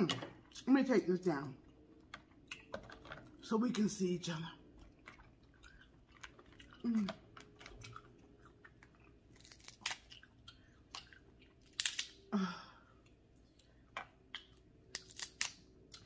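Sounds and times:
chewing and wet mouth smacks: 4.8 - 12.0.

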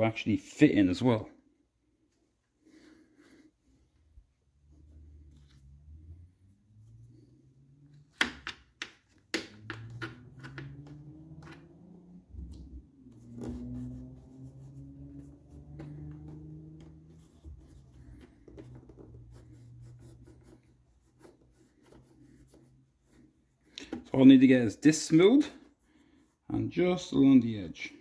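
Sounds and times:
low wavering hum: 9.6 - 18.2.

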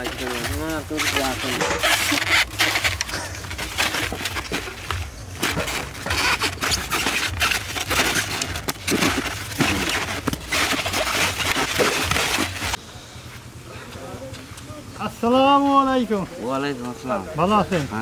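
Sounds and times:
foam boxes scraping: 0.0 - 12.8.

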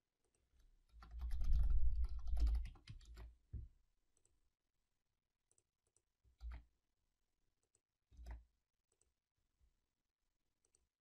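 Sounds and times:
keyboard typing: 0.3 - 3.4, 5.5 - 6.7.

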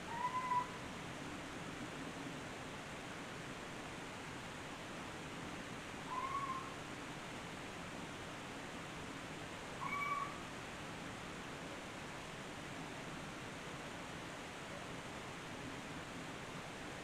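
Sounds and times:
steady hiss: 0.0 - 17.0
meow-like calls: 0.1 - 0.8, 6.1 - 6.7, 9.8 - 10.4.

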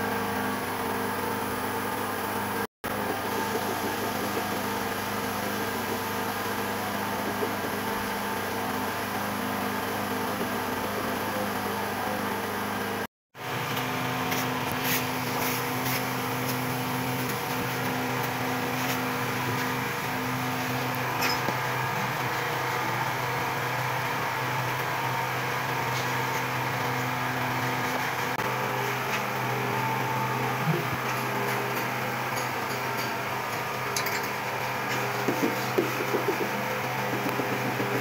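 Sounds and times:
steady mechanical hum: 0.0 - 38.0.

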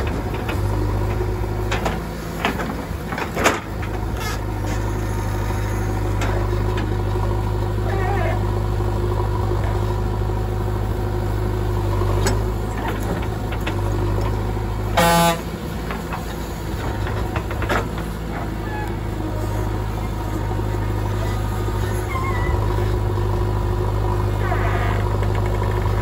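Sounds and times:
diesel engine running: 0.0 - 26.0
vehicle horn blast: 14.9 - 15.5.

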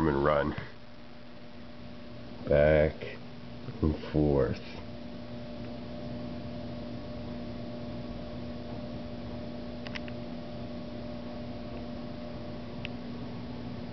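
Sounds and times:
electrical hum and hiss: 0.0 - 13.9
faint clicks: 9.8 - 10.2.

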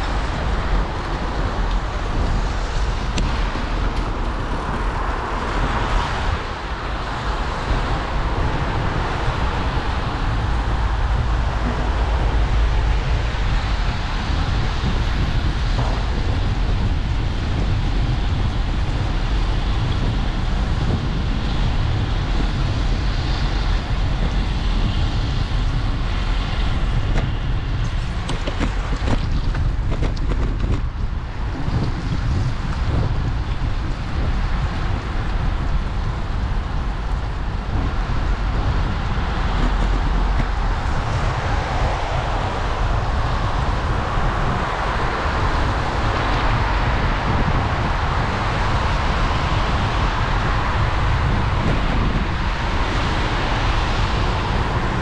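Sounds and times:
road and traffic rumble: 0.0 - 55.0
wind noise on microphone: 0.0 - 55.0.

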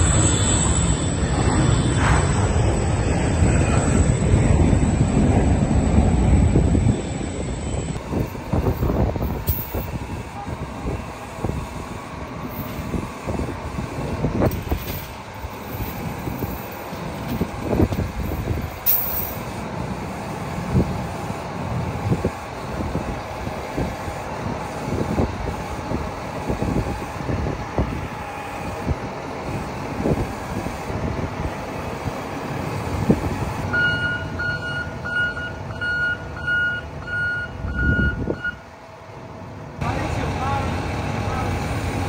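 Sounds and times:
forklift engine rumbling: 0.0 - 42.0
backup alarm beeping: 33.7 - 38.7.

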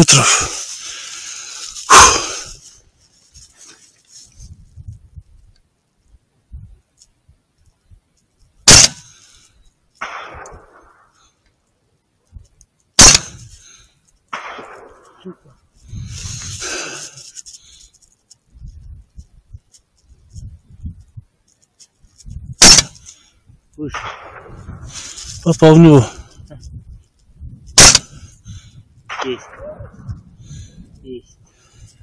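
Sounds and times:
rustling: 0.1 - 23.4, 24.1 - 25.8
rifle shots: 8.7 - 9.0, 10.0 - 11.0, 13.0 - 13.4, 14.3 - 15.2, 22.6 - 23.0, 23.9 - 24.7, 27.8 - 28.1.

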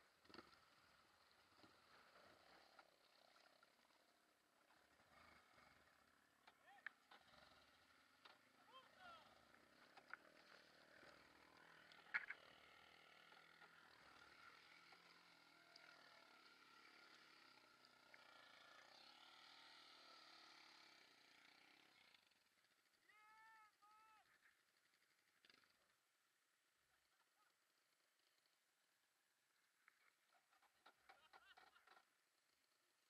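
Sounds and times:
muffled quad bike engine: 0.0 - 33.0.

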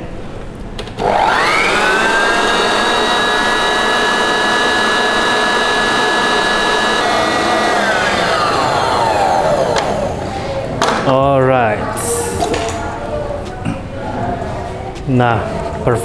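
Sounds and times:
stand mixer motor whine: 1.0 - 10.3.

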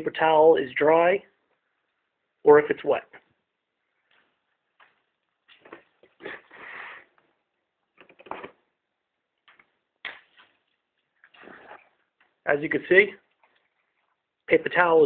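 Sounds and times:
paper rustling: 9.5 - 12.0.

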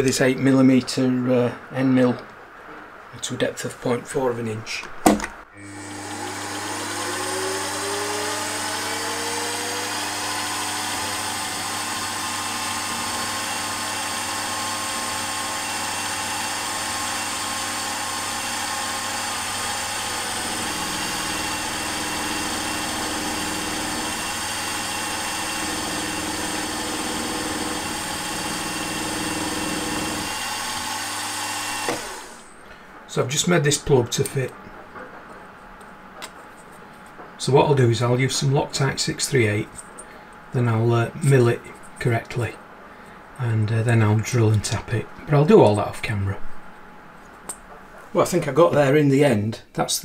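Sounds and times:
milling machine cutting metal: 5.6 - 32.5.

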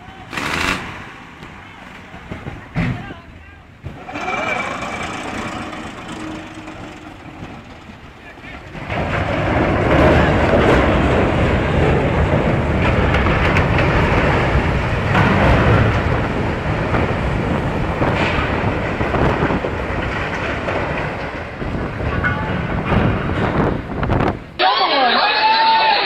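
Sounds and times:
ship hull grinding up beach: 3.9 - 22.1.

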